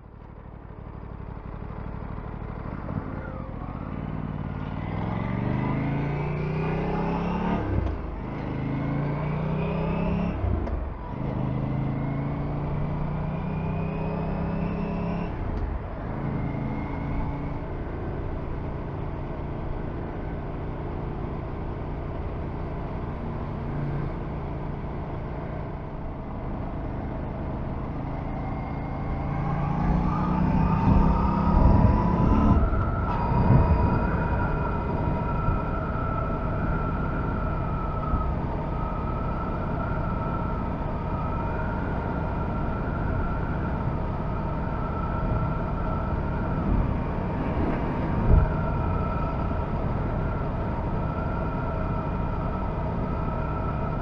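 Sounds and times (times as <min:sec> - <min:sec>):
motorcycle engine accelerating: 0:00.4 - 0:54.0
wind noise: 0:30.6 - 0:54.0.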